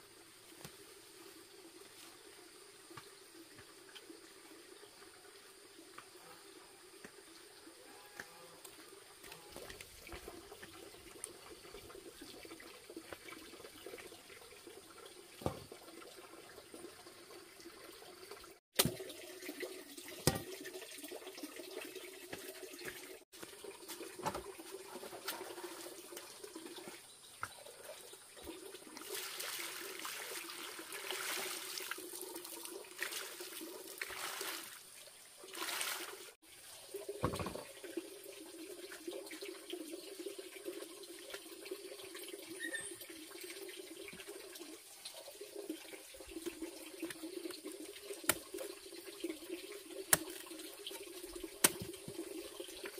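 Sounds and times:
water running: 0.5 - 52.9
water poured from plastic basin: 28.4 - 52.9.

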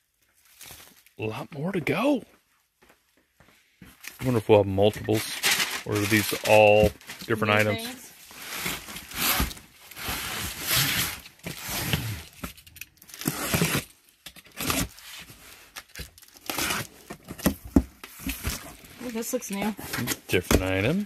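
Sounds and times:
box cutter slicing packing tape: 13.2 - 15.0, 16.4 - 17.6.

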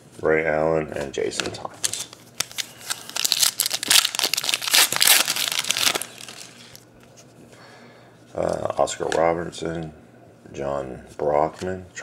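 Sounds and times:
foil wrapper tearing and crinkling: 1.8 - 6.8.

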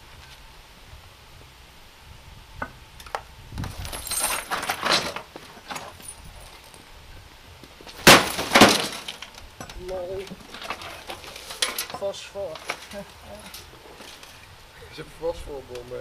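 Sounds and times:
broken glass clinking and rattling: 3.7 - 6.9, 7.9 - 14.4.

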